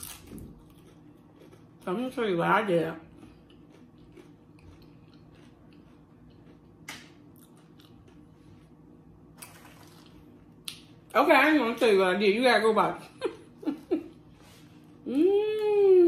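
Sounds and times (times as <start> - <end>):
chewing with mouth clicks: 0.0 - 1.9, 3.0 - 8.2
crunch: 3.2 - 8.2.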